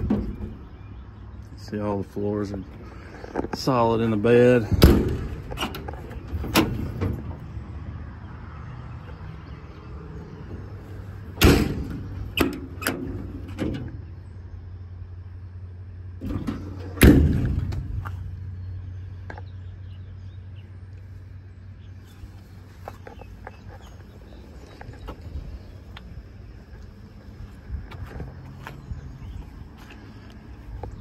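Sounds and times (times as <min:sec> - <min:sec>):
metal doors slamming: 0:04.6 - 0:07.5, 0:11.3 - 0:14.2, 0:16.2 - 0:18.0.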